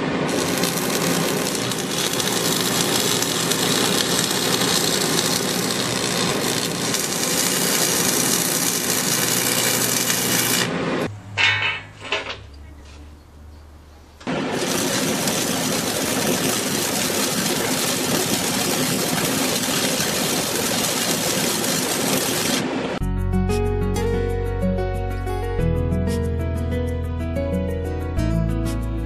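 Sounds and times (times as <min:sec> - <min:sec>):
welding arc hissing: 0:00.2 - 0:11.1, 0:14.3 - 0:23.0.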